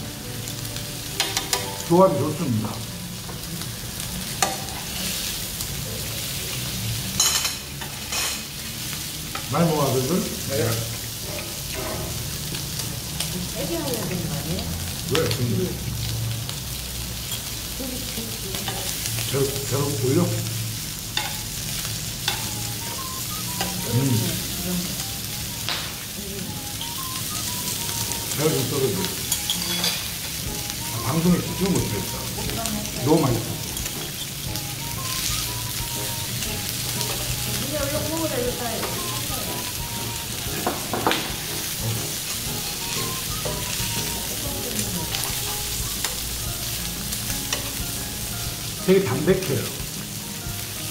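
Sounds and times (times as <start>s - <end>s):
meat sizzling on a griddle: 0.0s - 50.9s
metal tongs clicking against pan: 18.5s - 19.0s.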